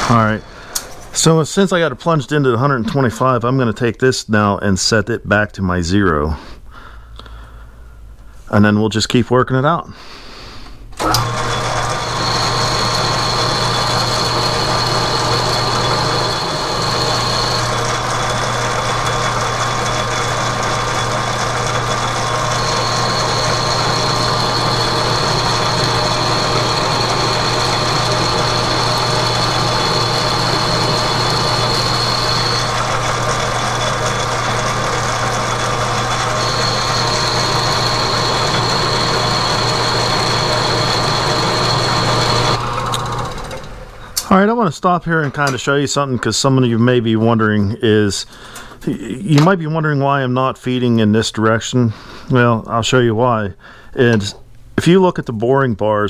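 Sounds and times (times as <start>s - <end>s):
metal lathe running: 11.0s - 44.2s
high cutting whine: 11.0s - 44.4s.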